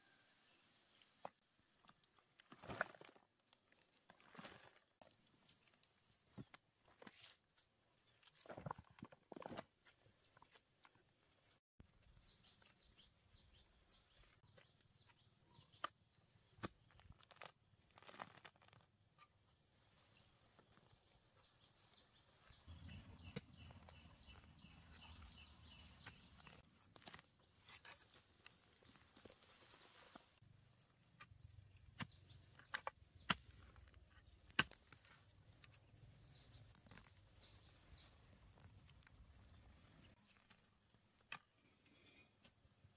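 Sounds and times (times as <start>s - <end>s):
plants being pulled up: 16.5s - 19.4s, 25.8s - 30.4s, 31.0s - 42.0s
birds chirping: 19.8s - 26.6s, 35.8s - 40.2s
stick digging into soil: 31.2s - 35.8s.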